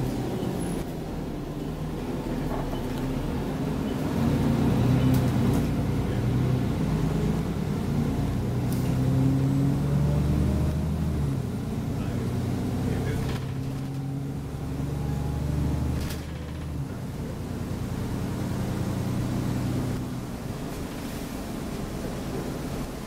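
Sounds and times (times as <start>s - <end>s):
bus engine humming: 0.0s - 23.0s
light interior rattles: 12.9s - 14.2s, 16.0s - 17.4s.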